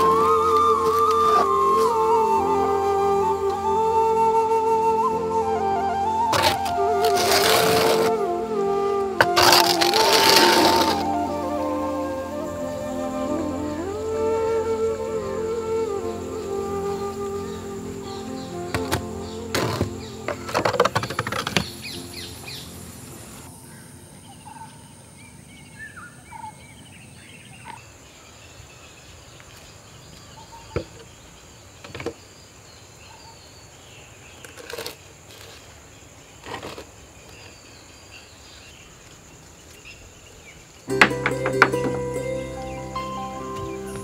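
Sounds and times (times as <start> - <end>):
steady high hiss: 0.0 - 34.3, 37.0 - 44.0
birds chirping: 0.0 - 34.6.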